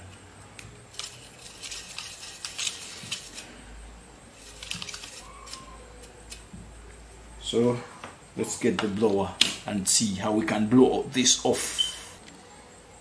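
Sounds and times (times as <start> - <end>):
brush scratching fan housing: 0.9 - 3.5, 4.3 - 6.5.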